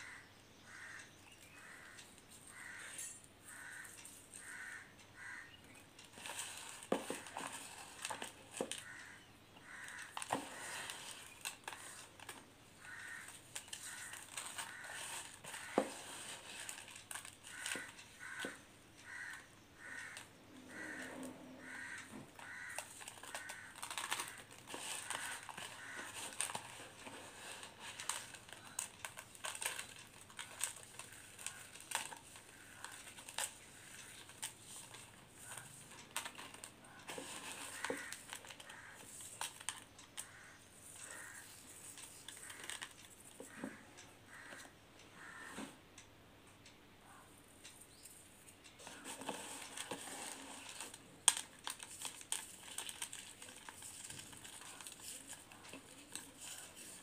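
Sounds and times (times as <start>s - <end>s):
crystals crushed by hand crackling: 6.1s - 9.0s, 9.8s - 18.6s, 22.0s - 43.1s, 48.8s - 57.0s.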